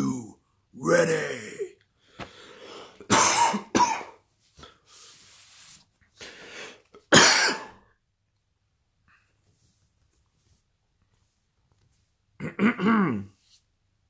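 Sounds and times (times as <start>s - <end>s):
man coughing: 3.1s - 4.2s, 7.1s - 7.8s, 12.4s - 13.4s.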